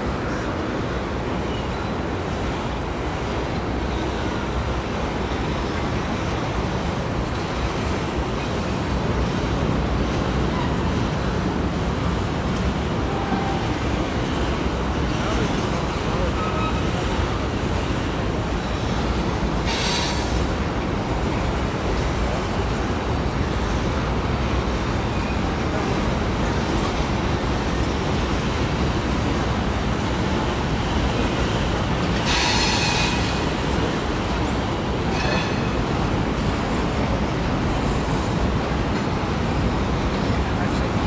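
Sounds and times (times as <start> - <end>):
train wheels rumbling on rail: 0.0 - 41.0.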